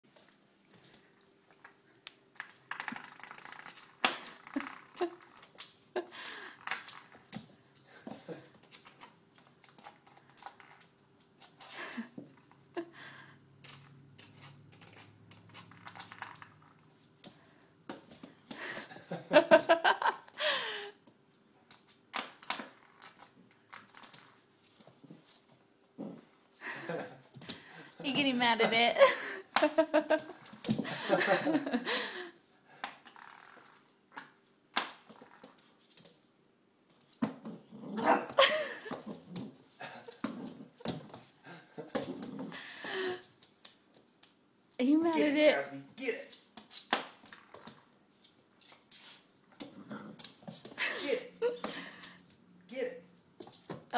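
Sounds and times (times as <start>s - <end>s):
puppy vocal outburst: 37.7s - 39.6s.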